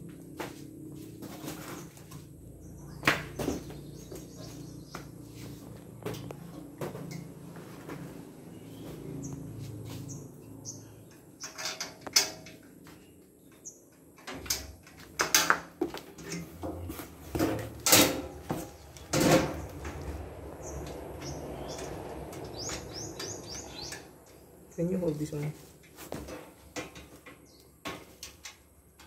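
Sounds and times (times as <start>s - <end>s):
metal frame pieces knocking: 14.3s - 20.0s.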